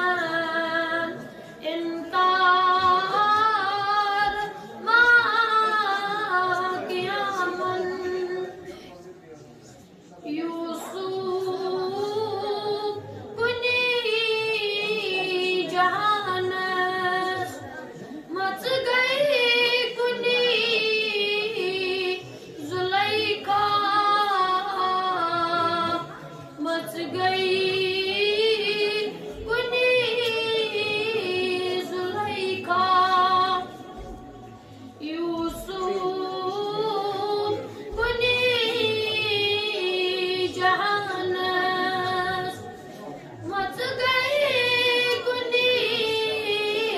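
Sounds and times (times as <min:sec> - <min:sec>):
boy singing unaccompanied: 0:00.0 - 0:08.6, 0:18.3 - 0:34.1, 0:35.0 - 0:42.6, 0:43.5 - 0:46.9.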